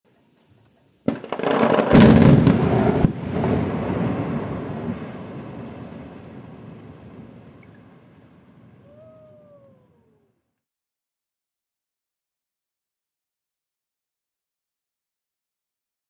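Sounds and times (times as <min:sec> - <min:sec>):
sharp blast crack: 0:01.1 - 0:08.2
rumbling explosion: 0:01.1 - 0:09.0.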